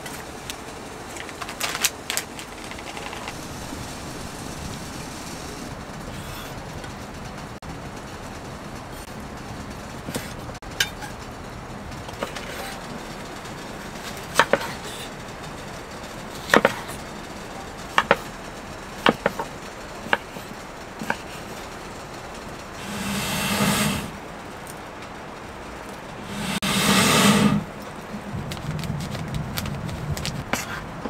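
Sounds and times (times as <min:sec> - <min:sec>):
steady background hiss: 0:00.0 - 0:28.6
sharp knocks and clacks: 0:17.6 - 0:18.4, 0:19.0 - 0:21.6.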